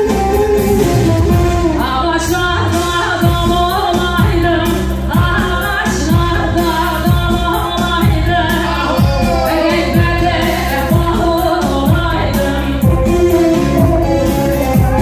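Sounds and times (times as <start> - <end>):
live band music: 0.0 - 15.0
steady drum beat: 0.0 - 15.0
person singing: 8.3 - 15.0.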